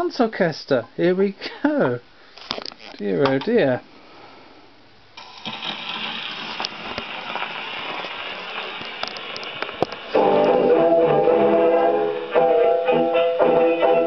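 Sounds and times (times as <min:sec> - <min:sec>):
record surface hiss and crackle: 0:00.0 - 0:14.0
record clicks: 0:05.2 - 0:10.2
dance band music on gramophone: 0:05.2 - 0:14.0.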